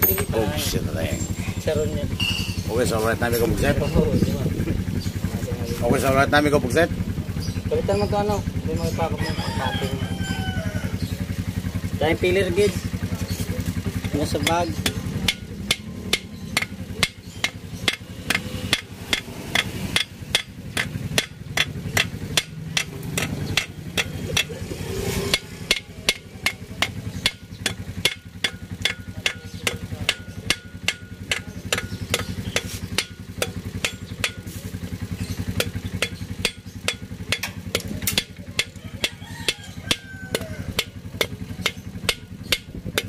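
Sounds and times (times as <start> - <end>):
hammer tapping metal: 14.2 - 43.0.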